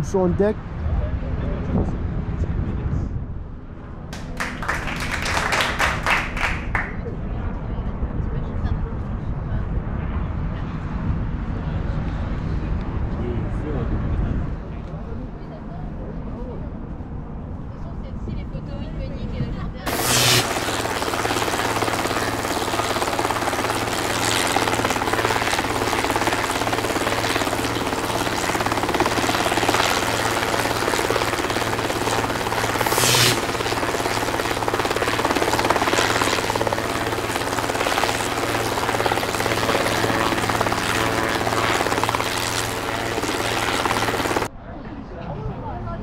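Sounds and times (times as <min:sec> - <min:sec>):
wind rushing over microphone: 0:00.0 - 0:04.1, 0:07.2 - 0:14.8
steady low hum: 0:19.9 - 0:44.5.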